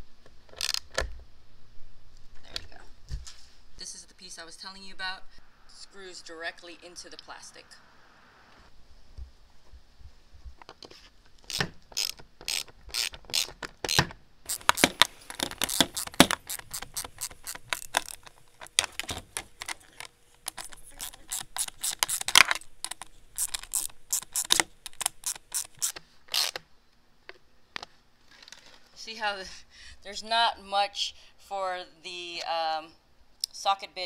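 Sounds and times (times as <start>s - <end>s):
hand ratchet clicking: 11.4s - 19.8s, 20.4s - 26.6s.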